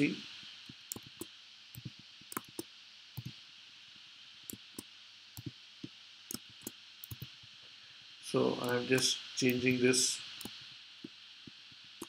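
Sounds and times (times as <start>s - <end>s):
steady hiss: 0.0s - 12.0s
keyboard and mouse clicking: 0.9s - 3.3s, 4.5s - 5.5s, 6.3s - 7.3s.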